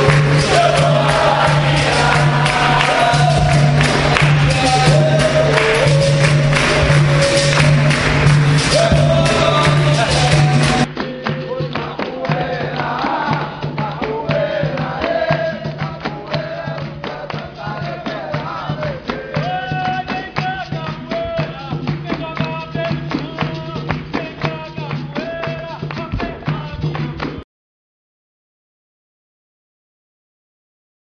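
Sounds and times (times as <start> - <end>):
person singing: 0.0 - 13.3
percussion rhythm with jingles: 0.0 - 27.4.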